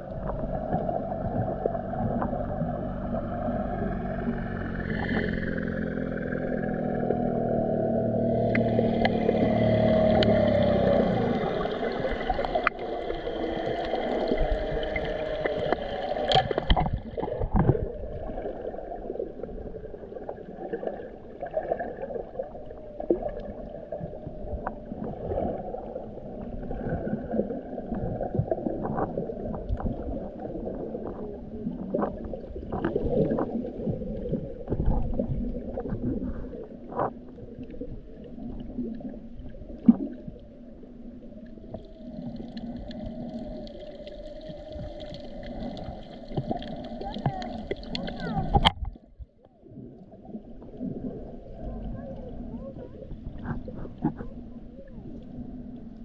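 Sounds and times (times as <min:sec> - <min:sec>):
motor hum: 0:00.0 - 0:56.0
water sloshing underwater: 0:00.0 - 0:56.0
sharp clicks and pops: 0:44.8 - 0:49.0.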